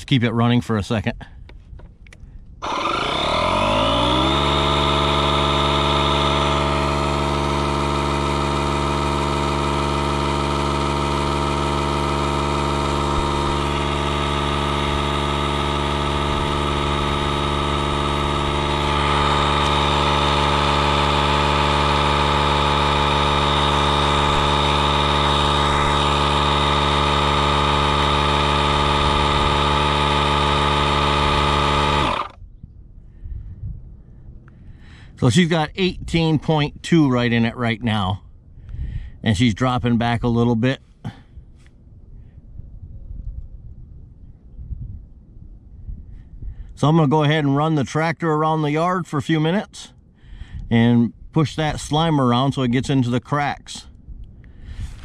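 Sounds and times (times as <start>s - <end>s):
air compressor running: 2.2s - 32.4s, 53.8s - 55.0s.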